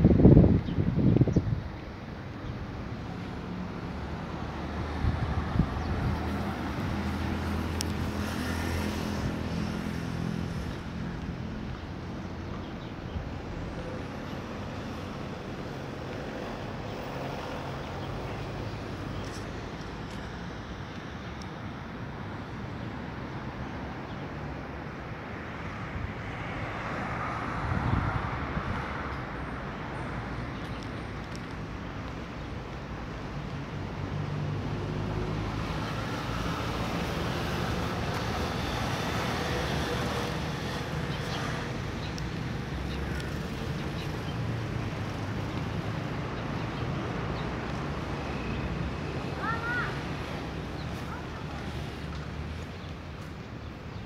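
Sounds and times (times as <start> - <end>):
wind buffeting microphone: 0.0 - 2.8, 4.8 - 12.2, 27.5 - 29.4
faint outdoor background noise: 0.0 - 54.0
road traffic: 0.0 - 54.0
vehicle passing: 3.1 - 12.1, 34.0 - 53.3.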